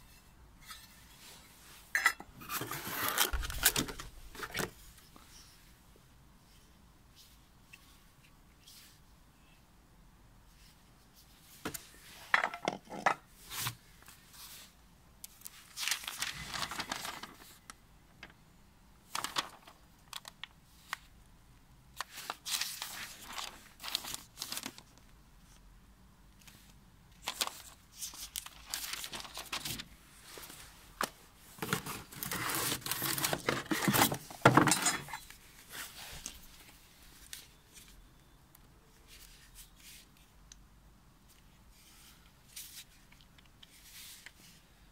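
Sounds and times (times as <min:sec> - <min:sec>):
paper and cardboard rustling: 0:02.4 - 0:04.8, 0:15.4 - 0:18.4, 0:19.1 - 0:20.4, 0:22.0 - 0:25.0, 0:26.5 - 0:37.9.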